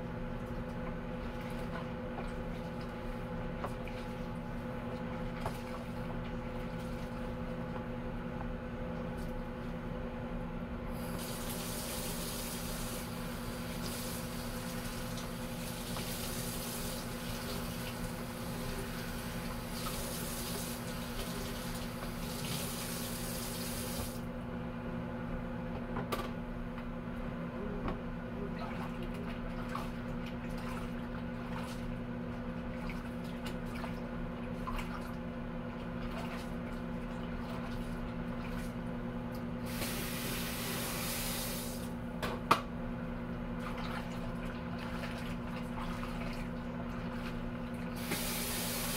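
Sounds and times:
faucet running into a sink: 48.0 - 48.9.

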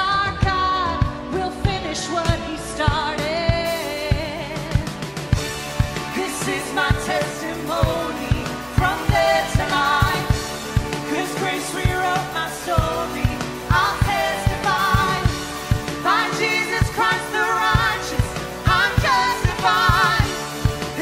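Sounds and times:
woman singing into a microphone: 0.0 - 5.0, 12.8 - 20.5
steady drum beat: 0.4 - 21.0.

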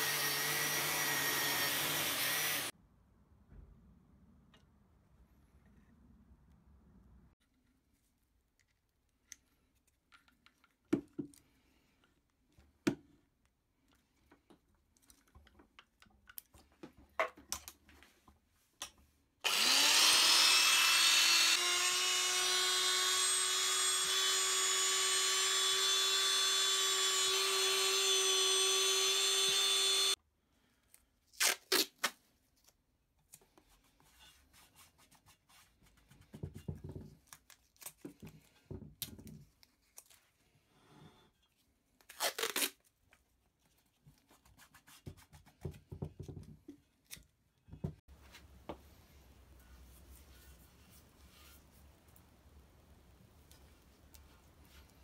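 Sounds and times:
electric drill whining: 0.0 - 2.7, 19.4 - 30.2.

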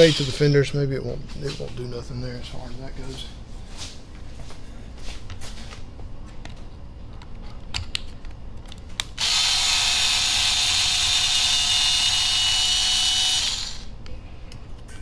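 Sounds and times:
electric screwdriver running: 0.0 - 0.4, 9.2 - 13.9.

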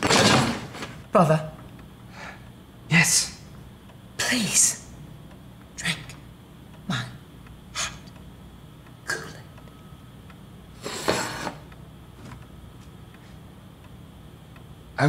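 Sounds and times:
person breathing: 2.1 - 2.5.

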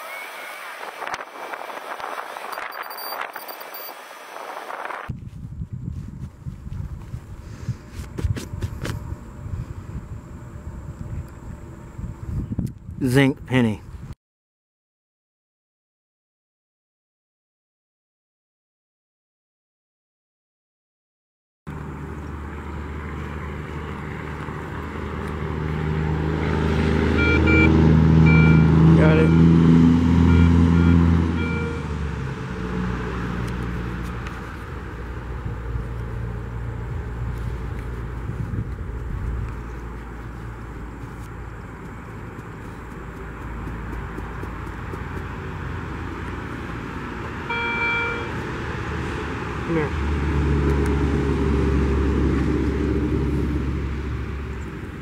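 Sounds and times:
metal detector beep: 2.5 - 4.0, 27.2 - 29.4, 30.3 - 31.9, 47.5 - 48.4
dirt worked by hand: 6.0 - 9.0, 37.1 - 46.8
engine drone: 21.7 - 55.0.

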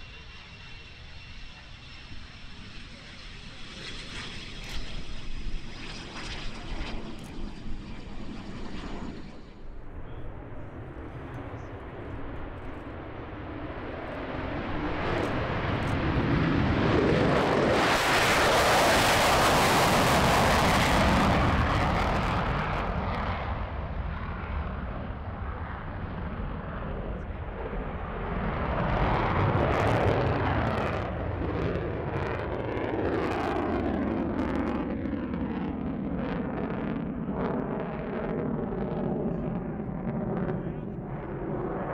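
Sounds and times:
jet afterburner roar: 0.0 - 41.9.

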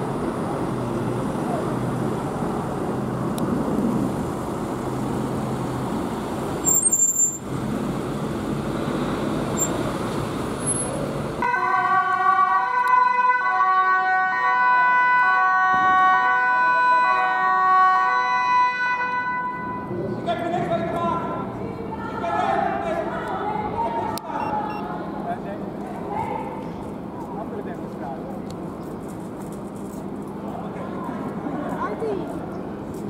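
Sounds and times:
two-tone siren: 11.4 - 19.9.

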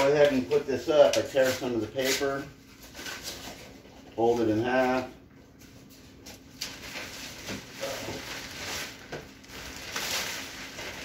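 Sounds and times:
plastic sheeting rustling: 6.6 - 11.0.

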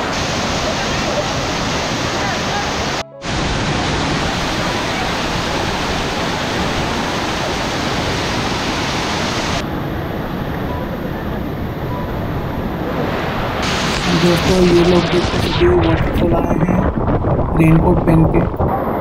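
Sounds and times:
waterfall rushing: 0.0 - 9.6, 11.3 - 16.3.

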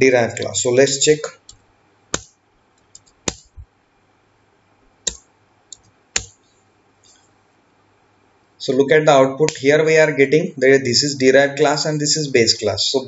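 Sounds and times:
keyboard key clicks: 2.2 - 3.6.

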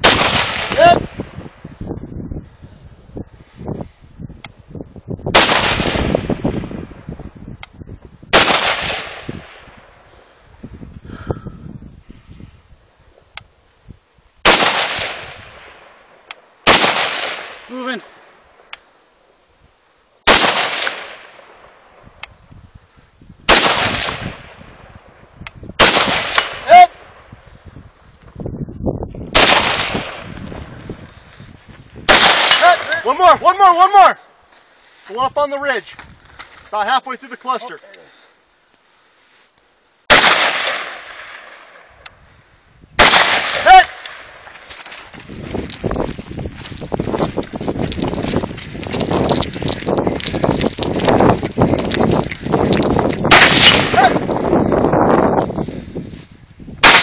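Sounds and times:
rifle shots echoing: 0.0 - 1.0, 5.3 - 6.2, 8.3 - 9.7, 14.4 - 17.7, 20.2 - 21.8, 23.5 - 24.6, 25.8 - 26.8, 29.3 - 30.3, 32.1 - 33.1, 40.1 - 41.9, 43.0 - 44.4, 53.3 - 54.2, 56.8 - 57.0.

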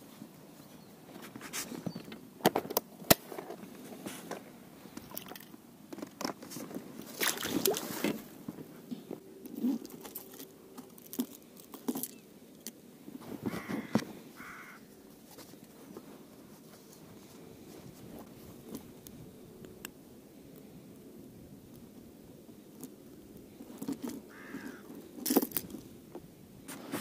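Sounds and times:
scuffling noise: 13.1 - 18.9, 26.6 - 27.0.

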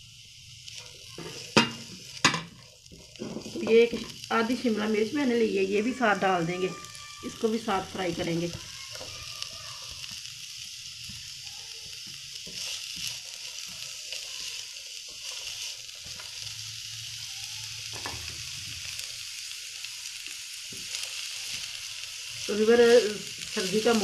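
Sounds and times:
vegetables sizzling in oil: 0.0 - 24.0
spoon scraping a pan: 0.8 - 4.7, 12.4 - 16.4.

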